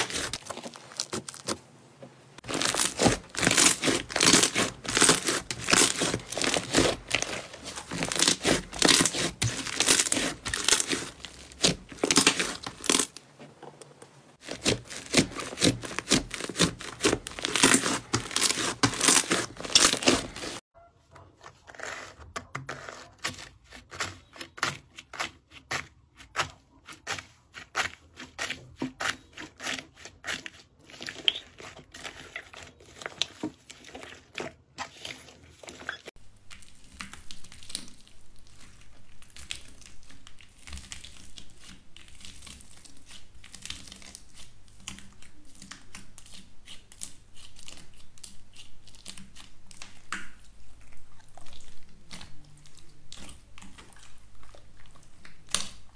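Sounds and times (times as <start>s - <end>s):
slime crackling and popping: 0.0s - 1.6s, 2.4s - 13.2s, 14.4s - 20.6s, 36.0s - 55.9s.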